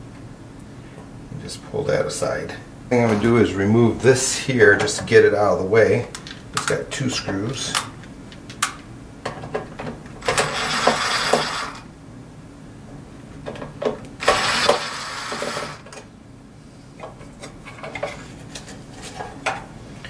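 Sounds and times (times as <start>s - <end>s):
clicks of parts being handled: 6.1s - 10.0s
screwdriver backing out screws: 10.2s - 11.8s, 14.2s - 15.9s.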